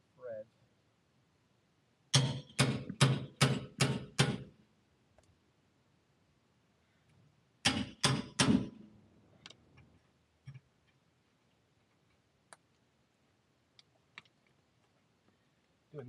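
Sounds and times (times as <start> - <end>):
hammer striking steel bolt: 2.1 - 4.5, 7.6 - 8.8.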